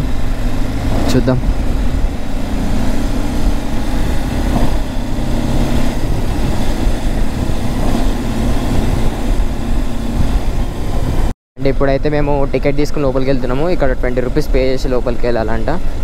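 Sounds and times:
motorcycle engine running: 0.0s - 11.3s
wind rushing over microphone: 0.0s - 15.2s.

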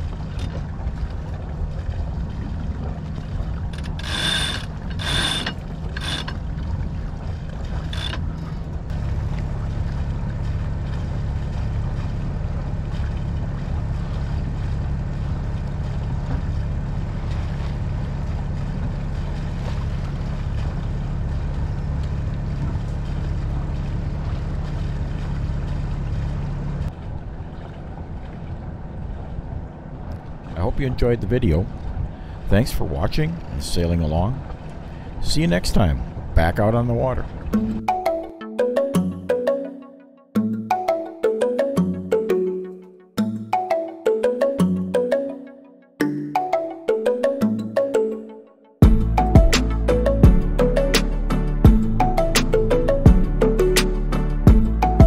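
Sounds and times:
low rumble of wind and water: 0.0s - 55.0s
winch ratcheting clicks: 3.7s - 6.4s, 7.9s - 8.3s.

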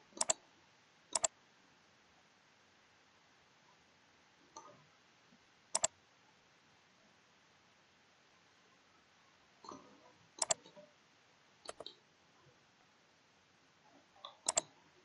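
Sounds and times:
computer mouse button clicks: 10.4s - 10.6s, 11.7s - 11.9s, 14.4s - 14.7s.

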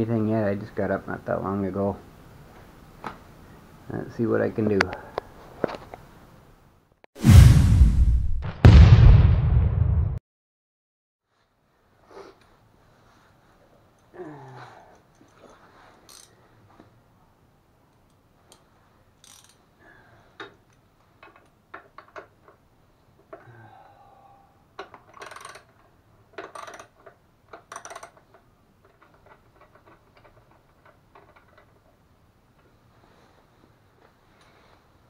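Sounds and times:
small metal parts clicking: 14.9s - 16.4s, 19.2s - 19.6s, 24.8s - 31.8s.

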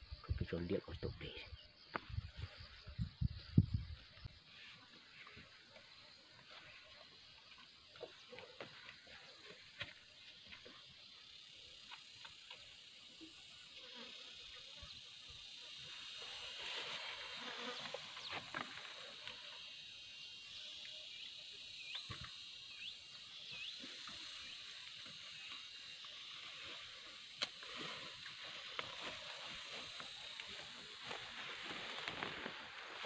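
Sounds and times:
insects chorus: 0.0s - 33.0s
rustling through leafy plants: 27.6s - 33.0s.

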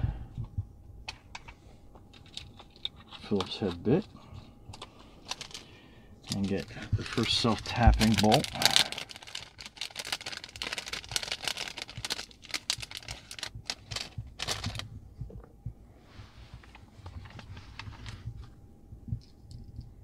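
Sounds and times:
faint handling noises: 0.4s - 20.0s
plastic bag crinkling: 4.8s - 14.9s.

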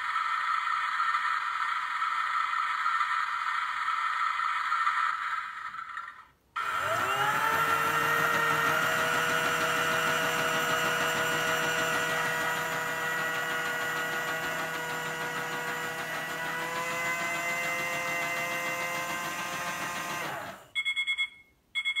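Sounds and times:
small electric motor whirring: 6.6s - 20.7s.

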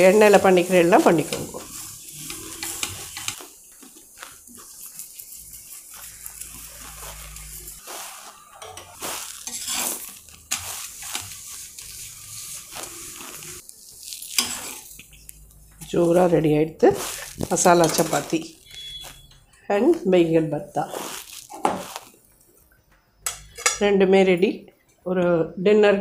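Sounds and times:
utensil scraping a pan: 0.0s - 15.3s, 16.8s - 19.3s
bread sizzling on a pan: 0.0s - 19.3s, 20.8s - 22.6s.

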